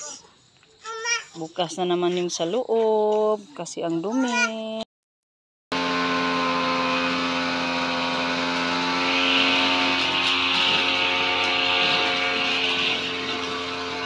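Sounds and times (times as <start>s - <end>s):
brush cutter running: 5.7s - 14.0s.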